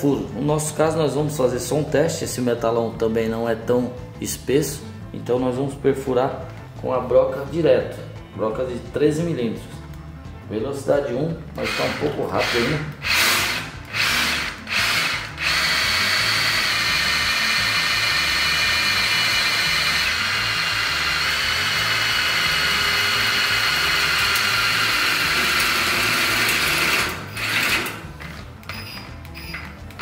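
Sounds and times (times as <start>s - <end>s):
drill bit whining through steel: 11.6s - 28.1s.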